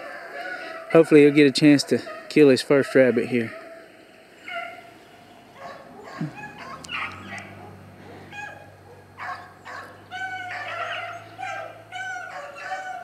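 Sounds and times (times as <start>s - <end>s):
dogs baying: 0.0s - 13.0s
steady low hum: 0.3s - 13.0s.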